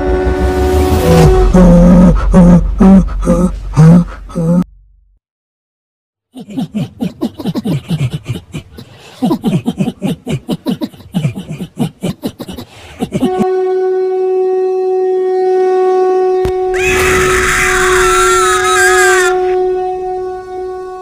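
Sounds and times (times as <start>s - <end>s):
blown horn-like note: 0.0s - 2.7s, 13.1s - 21.0s
deep pulsing voice effect: 1.2s - 4.7s.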